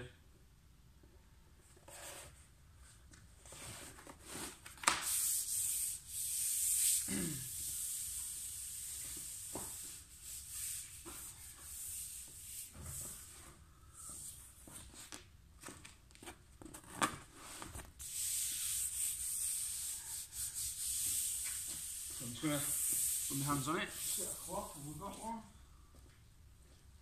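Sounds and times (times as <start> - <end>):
hands rubbing laminate sheet: 4.3 - 15.2, 17.4 - 25.4.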